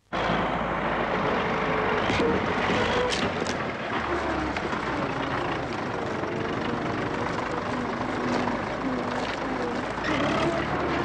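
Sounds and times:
heavy vehicle engine running: 0:00.0 - 0:11.0.

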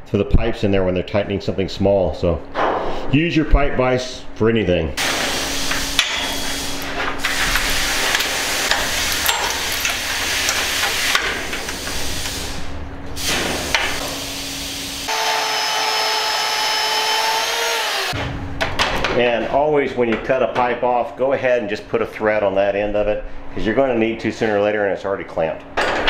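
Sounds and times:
tonal saw whine: 0:14.2 - 0:18.2
band saw cutting steel pipe: 0:15.0 - 0:18.2.

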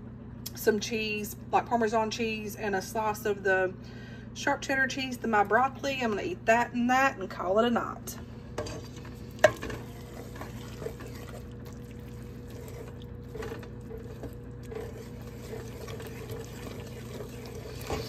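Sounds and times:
steady low hum: 0:00.0 - 0:18.0
wooden spoon stirring in pot: 0:08.4 - 0:18.0.

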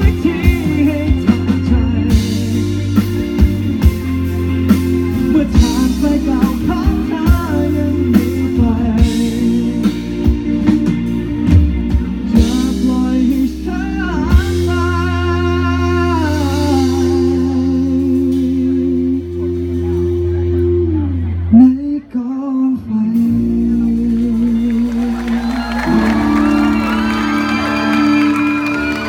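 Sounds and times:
drum kit: 0:00.0 - 0:20.7
electric guitar: 0:00.0 - 0:22.1, 0:22.8 - 0:29.0
man singing: 0:00.0 - 0:26.0
pop-rock band playing: 0:00.0 - 0:29.0.

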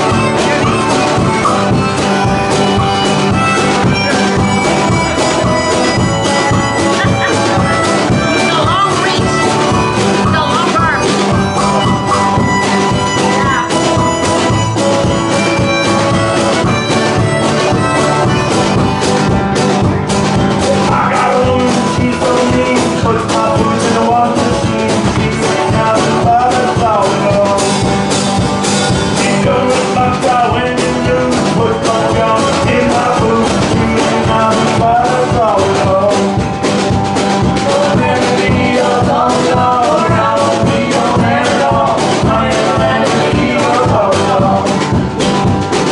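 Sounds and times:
acoustic band playing: 0:00.0 - 0:45.9
woman singing: 0:08.2 - 0:09.4, 0:10.2 - 0:11.5, 0:13.3 - 0:13.7.

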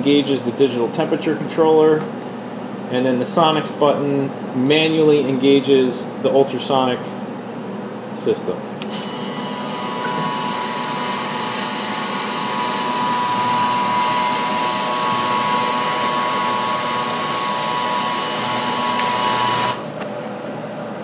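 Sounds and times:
ultrasonic cleaner hiss: 0:08.9 - 0:19.9
cavitation whining tones: 0:09.2 - 0:19.8.

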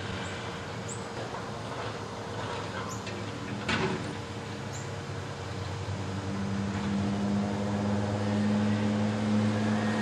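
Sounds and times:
diesel engine revving: 0:05.0 - 0:10.0.

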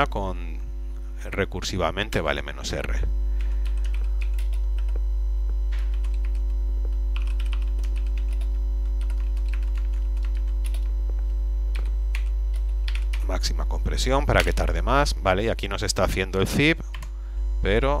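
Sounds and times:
loud low hum: 0:00.0 - 0:18.0
keyboard typing: 0:03.4 - 0:05.0, 0:05.8 - 0:06.5, 0:07.1 - 0:10.9, 0:11.7 - 0:13.3.

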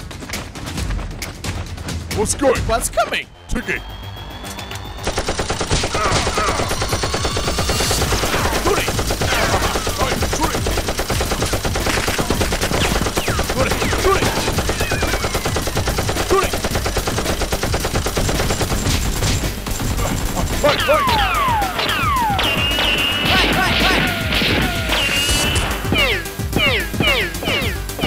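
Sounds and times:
automatic gunfire bursts: 0:05.0 - 0:25.4.

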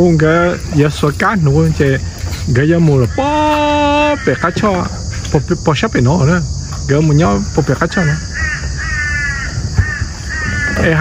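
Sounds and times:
high insect drone: 0:00.0 - 0:11.0
crows cawing: 0:02.8 - 0:05.1, 0:07.8 - 0:11.0.

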